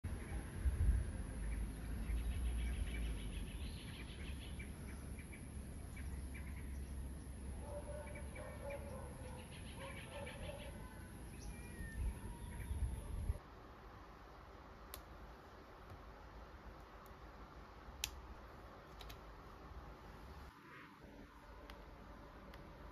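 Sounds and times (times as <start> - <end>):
steady low rumble: 0.1 - 7.6
birds chirping and trilling: 1.3 - 13.4.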